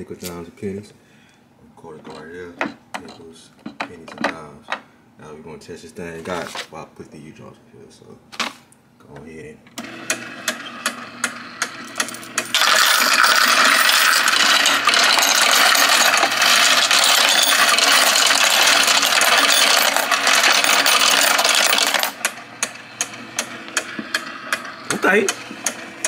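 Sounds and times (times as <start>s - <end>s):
coin sorter motor humming: 9.8s - 26.0s
clatter of coins: 11.8s - 22.4s.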